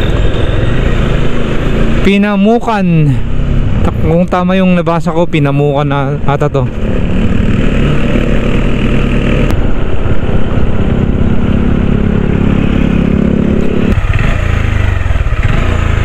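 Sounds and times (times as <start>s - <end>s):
motorcycle engine running: 6.5s - 16.0s.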